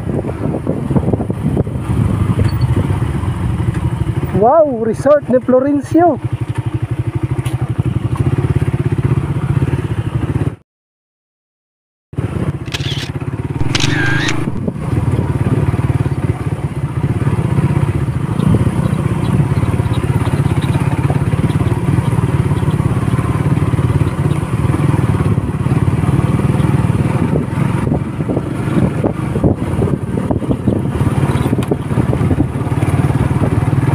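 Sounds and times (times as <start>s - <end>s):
road noise: 0.0s - 10.6s, 12.2s - 33.9s
small motorcycle engine running: 12.2s - 33.9s.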